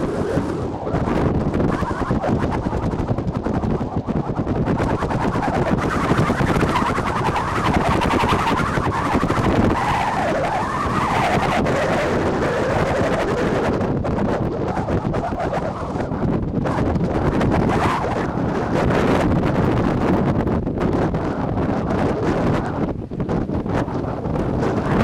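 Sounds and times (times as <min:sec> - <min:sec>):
wavering pitched sound: 0:00.0 - 0:13.8
wind buffeting microphone: 0:00.0 - 0:25.0.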